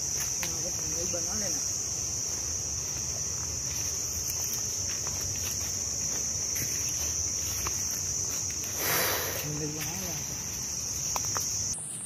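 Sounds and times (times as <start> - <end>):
footsteps on dry leaves: 0.0 - 11.8
insects droning: 0.0 - 12.0.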